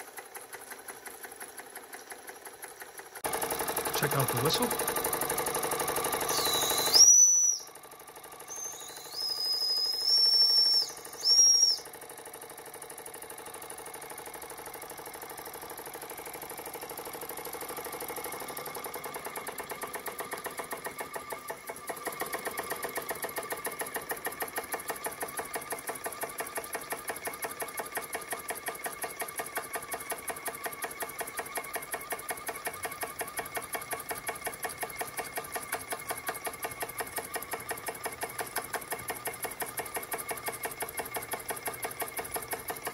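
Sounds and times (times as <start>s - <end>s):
steam engine chuffing: 0.0s - 42.9s
steam whistle blasts: 6.3s - 7.6s.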